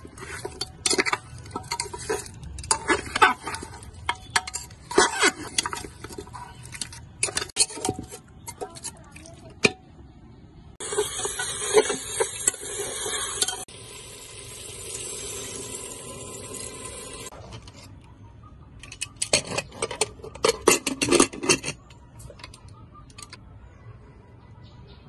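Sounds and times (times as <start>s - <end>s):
metal spatula scraping pot: 0.0s - 9.3s, 10.8s - 13.7s, 18.9s - 21.9s
metal clinks on pot: 0.2s - 8.9s.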